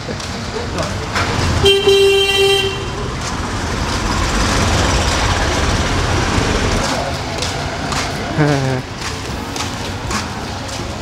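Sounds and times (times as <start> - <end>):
street traffic din: 0.0 - 11.0
vehicle horn honking: 1.6 - 3.1.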